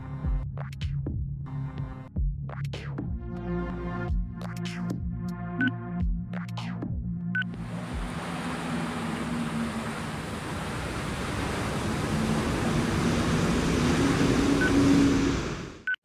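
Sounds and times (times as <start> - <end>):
faint low wavering hum: 7.5 - 15.6
rushing noise: 7.6 - 16.0.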